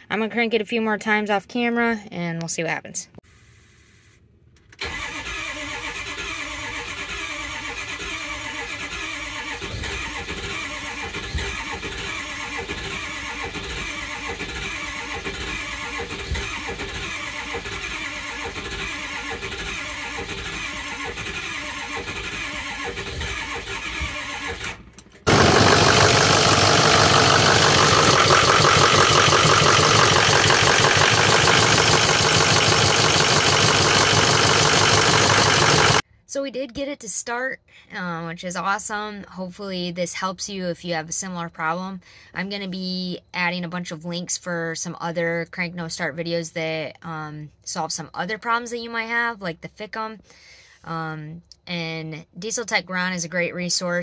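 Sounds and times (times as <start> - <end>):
starter cranking engine: 4.8 - 36.0
diesel engine running: 4.9 - 36.0.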